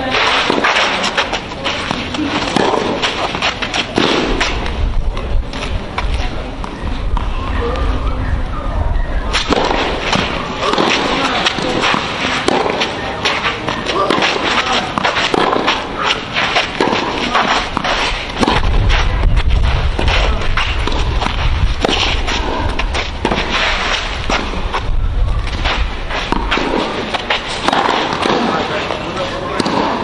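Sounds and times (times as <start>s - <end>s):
shoes scraping on clay: 0.0s - 4.8s, 9.4s - 30.0s
racket striking tennis ball: 0.1s - 6.2s, 9.3s - 30.0s
low rumble: 17.8s - 27.0s.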